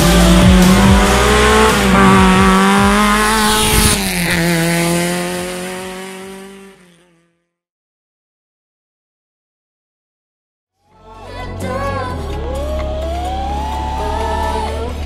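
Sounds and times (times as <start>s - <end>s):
rally car engine passing: 0.0s - 7.6s, 11.5s - 15.0s.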